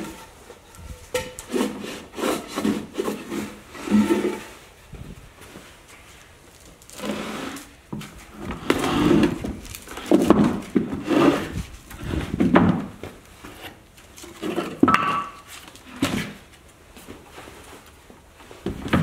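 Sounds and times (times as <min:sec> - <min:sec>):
wooden frame scraping and knocking: 0:00.0 - 0:04.6, 0:07.0 - 0:16.5.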